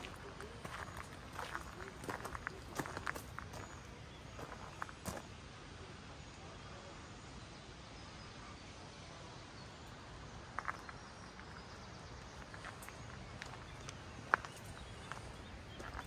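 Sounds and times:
faint outdoor background noise: 0:00.0 - 0:16.0
footstep crunches: 0:12.4 - 0:16.0.

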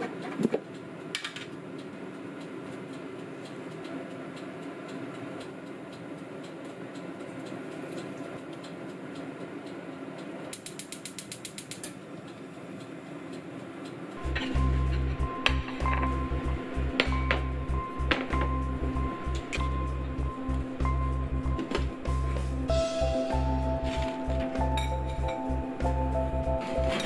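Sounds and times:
gas burner igniter clicking: 0:10.5 - 0:12.5
steady low hum: 0:12.0 - 0:27.0.

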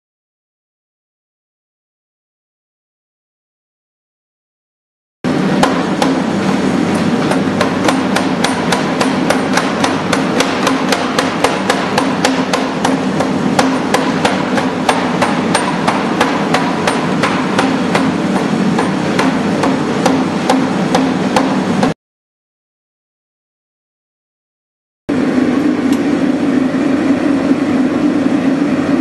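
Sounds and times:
low hum: 0:25.1 - 0:29.0.

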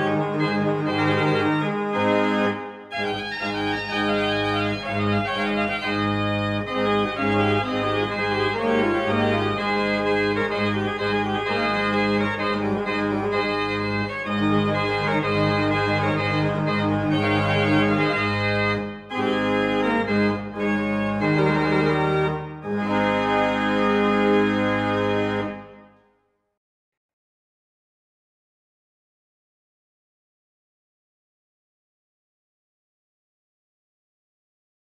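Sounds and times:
organ playing sustained chords: 0:00.0 - 0:25.9.

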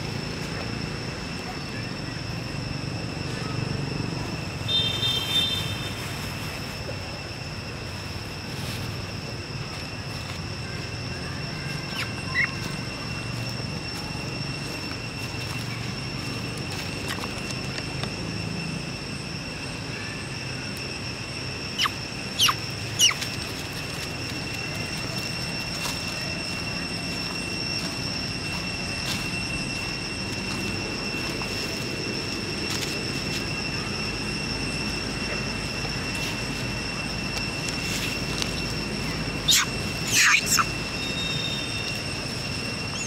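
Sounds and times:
insects droning: 0:00.0 - 0:43.0
short sharp squeaks: 0:39.5 - 0:41.2.

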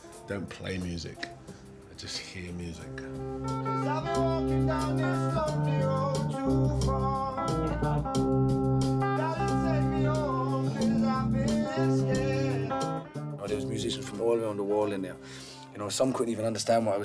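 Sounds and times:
instrumental band backing: 0:02.8 - 0:15.7
man singing into microphone: 0:03.8 - 0:08.1, 0:09.0 - 0:14.1.

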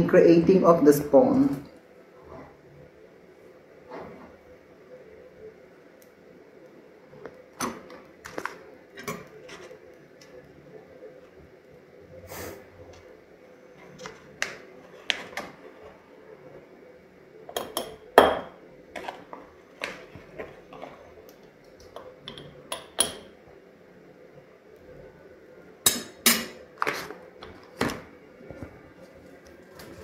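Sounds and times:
metal spoon clinking on glass: 0:17.6 - 0:18.4.

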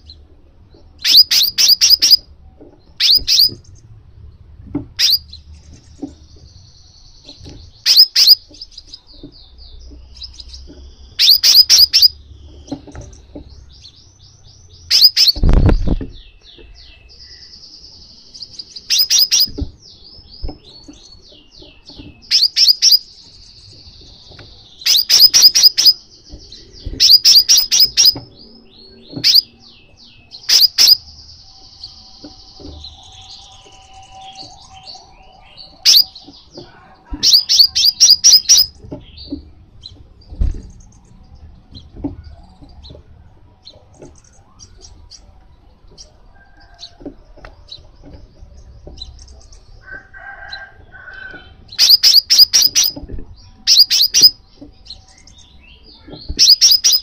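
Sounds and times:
bird chipping calls: 0:01.0 - 0:02.3, 0:02.9 - 0:03.9, 0:04.9 - 0:17.6, 0:18.2 - 0:43.0, 0:45.9 - 0:57.0
fast high twittering trill: 0:01.1 - 0:02.2, 0:24.9 - 0:26.0, 0:37.3 - 0:38.7, 0:51.8 - 0:53.0, 0:56.4 - 0:57.0.

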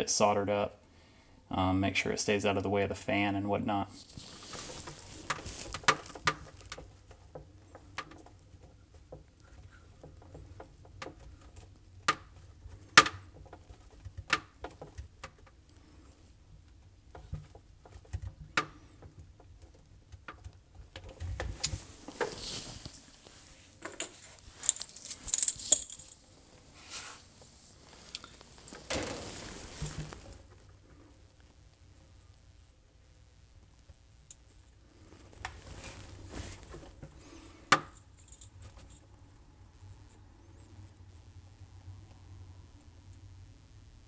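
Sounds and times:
rustling: 0:03.9 - 0:14.2, 0:20.8 - 0:32.4, 0:34.5 - 0:39.2
wires clicking and ticking: 0:23.8 - 0:26.2, 0:28.0 - 0:28.8.

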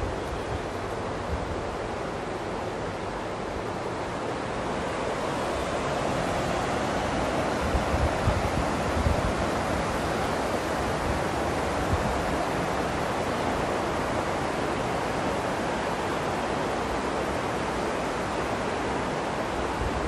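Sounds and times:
wind buffeting microphone: 0:06.2 - 0:14.3.

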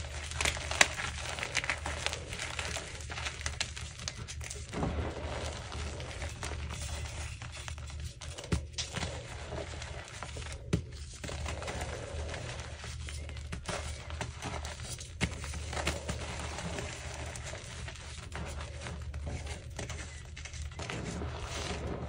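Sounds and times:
chalk block cracking apart: 0:00.0 - 0:07.5.

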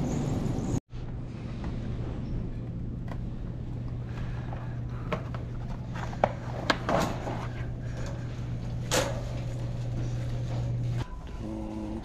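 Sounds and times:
shopping cart rumbling: 0:05.0 - 0:11.6.

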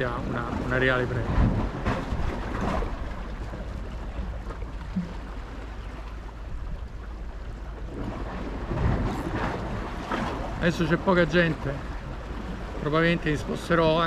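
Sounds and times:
sea surf: 0:00.0 - 0:14.0
wind: 0:00.0 - 0:14.0.

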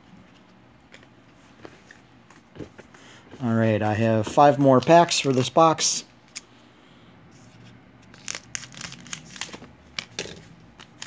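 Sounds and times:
pack wrapper crinkling and tearing: 0:08.1 - 0:11.0.

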